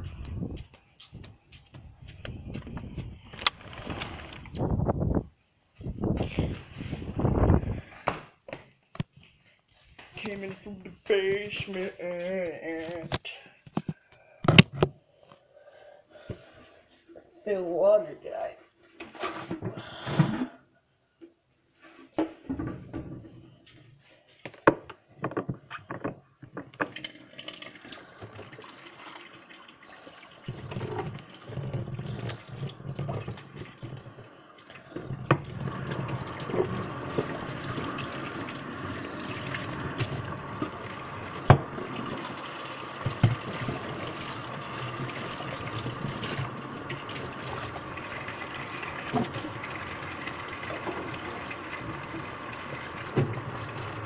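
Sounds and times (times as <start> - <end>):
tap water running into container: 26.6 - 54.0.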